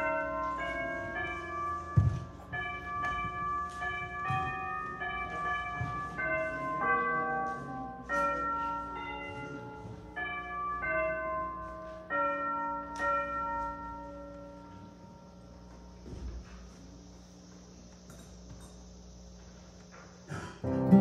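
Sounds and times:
bell chimes ringing: 0:00.0 - 0:15.9.

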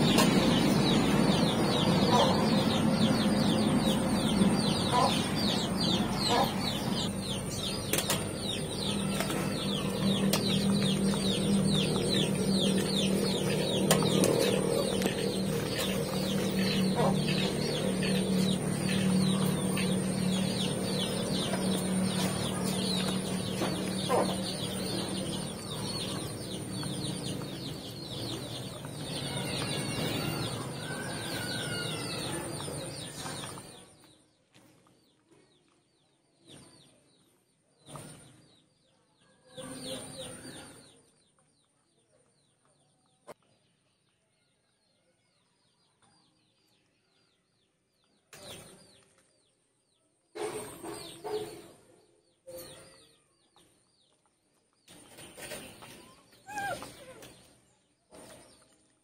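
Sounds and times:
chickens clucking: 0:00.0 - 0:33.9, 0:50.4 - 0:51.9
small birds chirping: 0:00.0 - 0:59.0.

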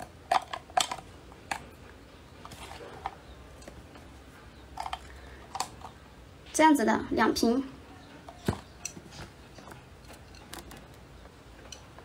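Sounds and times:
chopsticks clicking against glass jar: 0:10.0 - 0:11.0.

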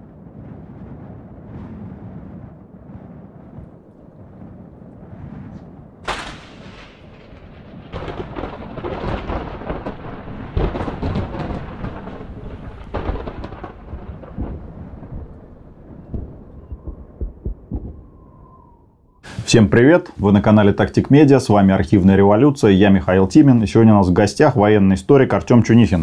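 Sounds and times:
deep booms and rumbling: 0:00.0 - 0:19.4
sudden crash: 0:05.5 - 0:09.4
sharp cracks: 0:05.5 - 0:18.8.

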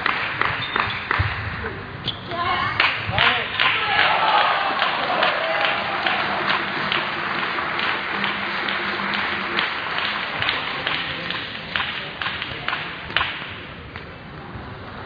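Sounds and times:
hall background noise: 0:00.0 - 0:15.0
table tennis balls clicking: 0:06.4 - 0:14.1.

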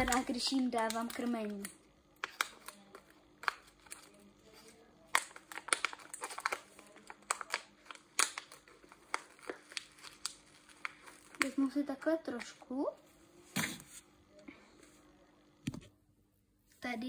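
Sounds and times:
plastic container crinkling: 0:00.0 - 0:12.6
faint steady hum: 0:00.0 - 0:17.0.

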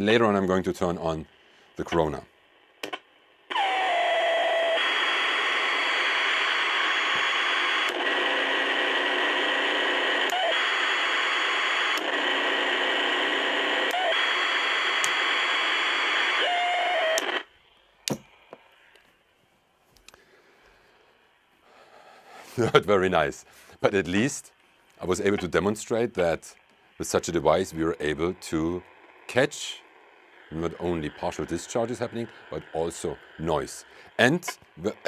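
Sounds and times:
radio static: 0:00.0 - 0:19.1, 0:20.7 - 0:35.0.

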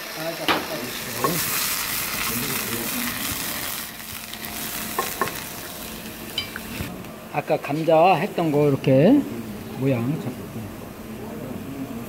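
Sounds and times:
vegetables sizzling in oil: 0:00.0 - 0:07.0.

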